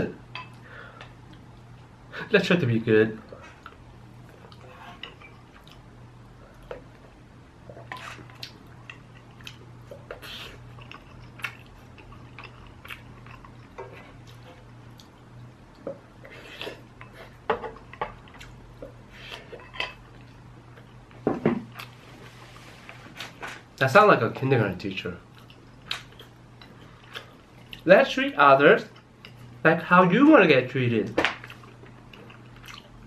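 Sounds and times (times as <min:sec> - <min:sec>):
steady low hum: 0:00.0 - 0:33.0
chewing and mouth smacks: 0:07.7 - 0:15.8, 0:31.4 - 0:33.0.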